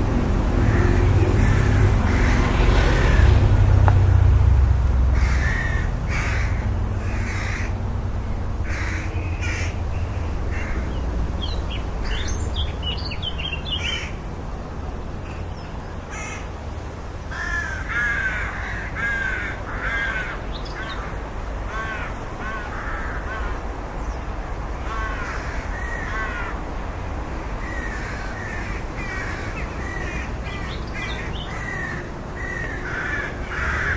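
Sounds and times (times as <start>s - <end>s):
rook cawing: 0.6s - 3.4s, 5.1s - 7.9s, 8.6s - 11.0s, 12.0s - 14.2s, 16.0s - 16.6s, 17.2s - 23.7s, 24.8s - 26.7s, 27.6s - 33.9s.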